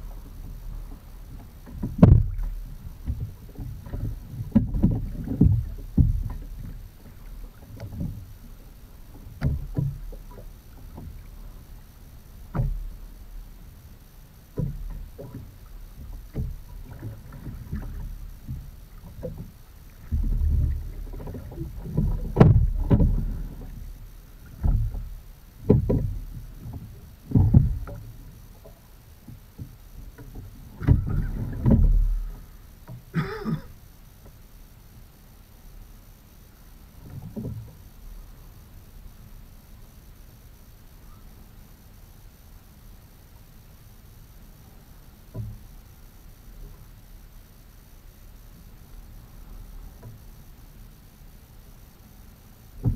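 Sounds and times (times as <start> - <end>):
dull oar knocks: 0.9 - 8.2, 9.1 - 11.3, 12.5 - 13.0, 14.5 - 33.6, 45.3 - 45.6
oars splashing in water: 14.7 - 28.8, 29.6 - 33.7.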